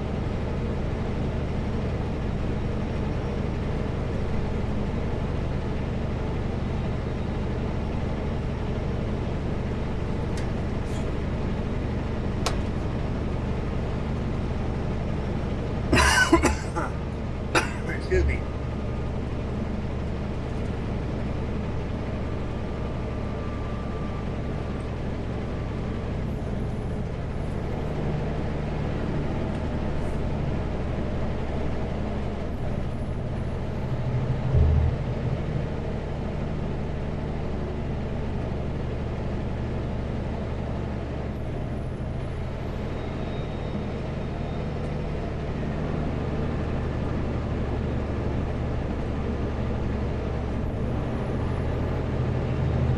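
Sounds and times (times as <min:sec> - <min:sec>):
truck diesel engine droning: 0:00.0 - 0:52.9
loud thump: 0:34.5 - 0:35.2.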